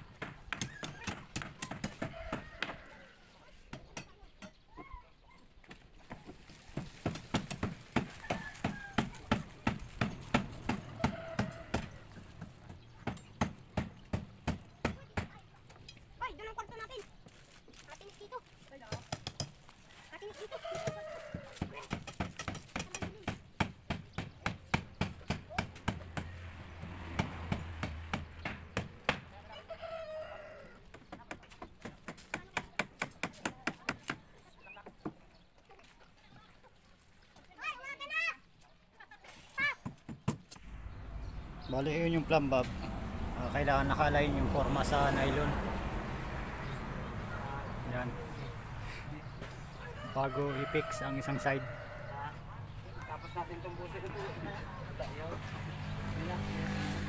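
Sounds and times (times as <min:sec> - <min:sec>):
rooster crowing: 0:02.0 - 0:03.3, 0:08.0 - 0:09.3, 0:10.8 - 0:12.2, 0:20.4 - 0:21.7, 0:29.5 - 0:30.8, 0:49.7 - 0:52.6.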